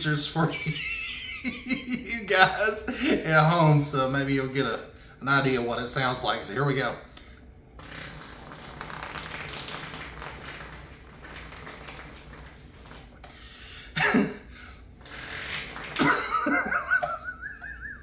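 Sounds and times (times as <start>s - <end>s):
armpit fart sounds: 7.8s - 13.3s, 15.0s - 17.1s.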